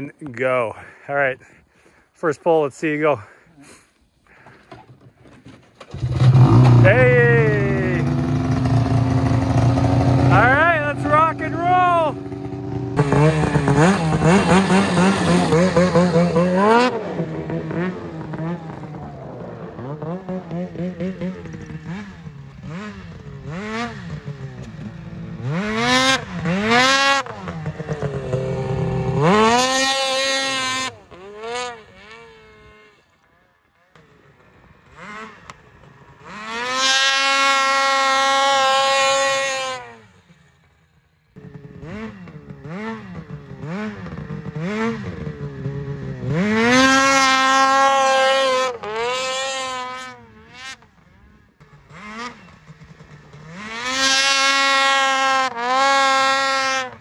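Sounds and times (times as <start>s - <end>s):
snowmobile engine revving: 5.8s - 57.0s.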